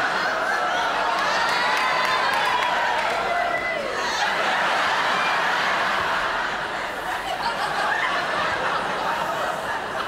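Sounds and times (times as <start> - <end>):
audience laughing: 4.0 - 10.0.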